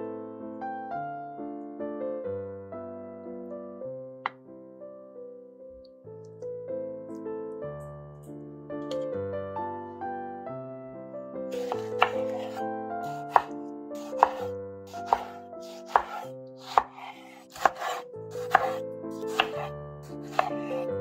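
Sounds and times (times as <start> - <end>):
soft piano music: 0.0 - 21.0
knife slicing tomato: 11.5 - 20.9
knife knocking on cutting board: 11.6 - 19.6, 20.2 - 20.8.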